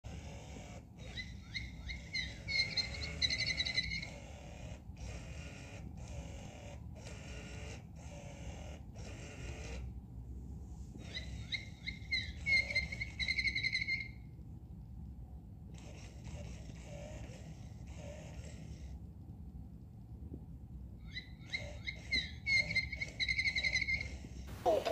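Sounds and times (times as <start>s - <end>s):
bird-like chirps and trill: 0.2s - 4.4s, 11.0s - 14.3s, 21.0s - 24.9s.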